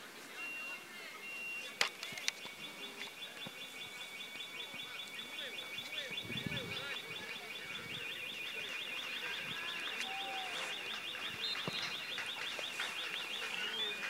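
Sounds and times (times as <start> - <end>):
distant car alarm: 0.3 - 14.0
faint shouts of players: 8.9 - 12.0.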